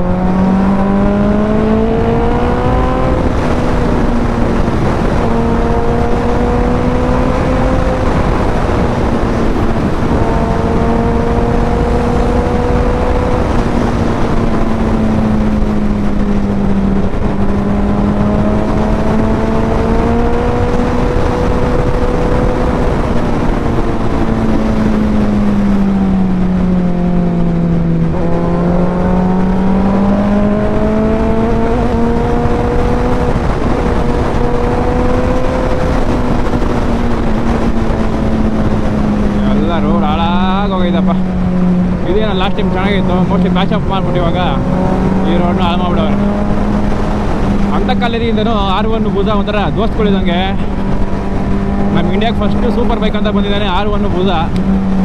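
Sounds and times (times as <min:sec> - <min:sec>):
motorcycle engine: 0:00.0 - 0:55.0
wind and road rush: 0:00.0 - 0:55.0.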